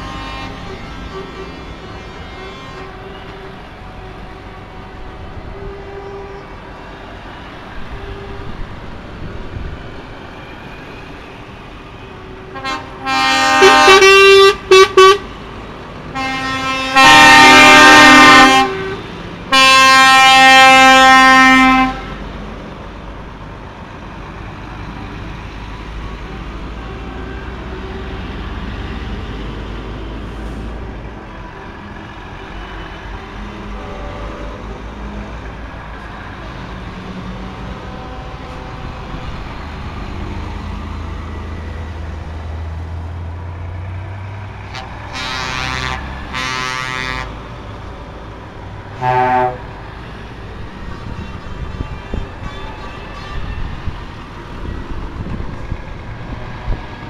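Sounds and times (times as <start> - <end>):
truck air horn blasts: 0.0 - 6.6, 12.1 - 15.4, 16.1 - 22.3, 33.1 - 34.8, 37.4 - 39.2, 44.6 - 47.6, 48.9 - 49.8
diesel trucks passing: 0.0 - 57.0.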